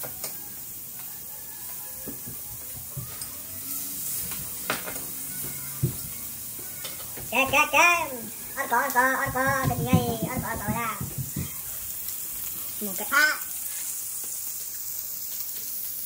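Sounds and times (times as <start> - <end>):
food sizzling on a grill: 0.0 - 16.0
utensils clicking against pan: 2.2 - 12.2.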